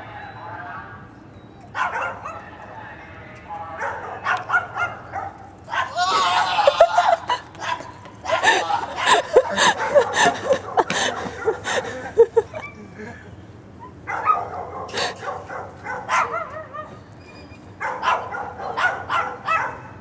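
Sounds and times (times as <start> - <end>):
small dog yapping: 4.3 - 10.6, 14.1 - 17.0.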